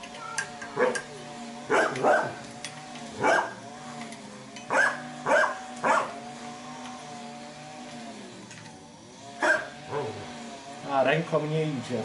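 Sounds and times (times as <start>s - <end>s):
dog barking: 1.7s - 2.4s, 3.2s - 3.6s, 4.7s - 6.1s, 9.4s - 10.1s.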